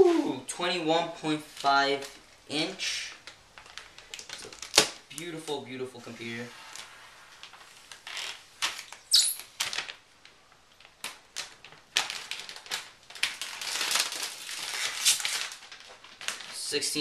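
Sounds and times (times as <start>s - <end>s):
plastic film crackling and rustling: 1.3s - 17.0s.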